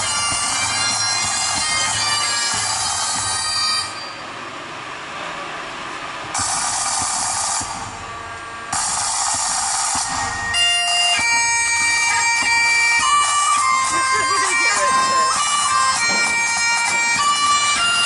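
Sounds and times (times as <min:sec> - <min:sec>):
bagpipe drone and melody: 0:00.0 - 0:04.2, 0:06.4 - 0:18.0
loud steady hiss: 0:00.0 - 0:18.0.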